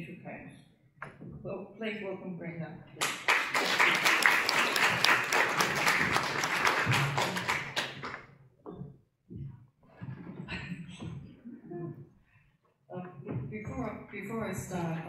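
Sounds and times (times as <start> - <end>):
audience applauding: 3.0 - 8.2
soft thumps: 8.0 - 12.1, 13.0 - 14.8.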